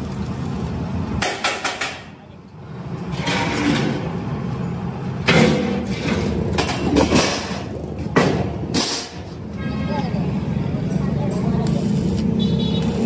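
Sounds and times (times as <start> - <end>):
sheet metal knocks and clanks: 1.2 - 2.1, 5.2 - 9.2.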